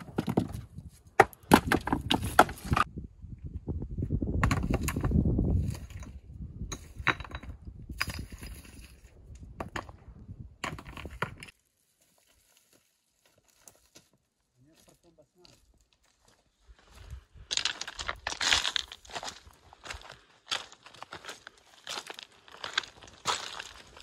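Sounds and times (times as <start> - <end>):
rocks knocking together: 0.0 - 2.9, 4.4 - 6.2, 10.6 - 11.5.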